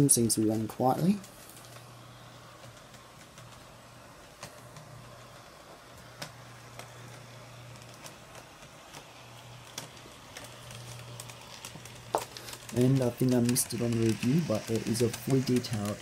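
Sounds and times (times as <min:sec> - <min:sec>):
faint model train motor hum: 0:00.0 - 0:16.0
wheels clicking on track: 0:00.0 - 0:16.0.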